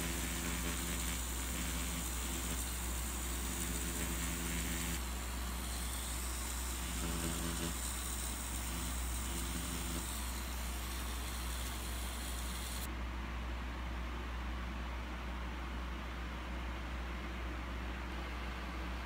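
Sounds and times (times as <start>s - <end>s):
tattoo machine buzzing: 0.0s - 12.9s.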